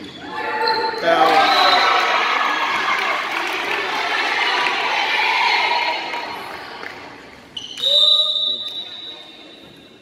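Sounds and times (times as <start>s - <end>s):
crowd cheering and shouting: 0.3s - 6.5s.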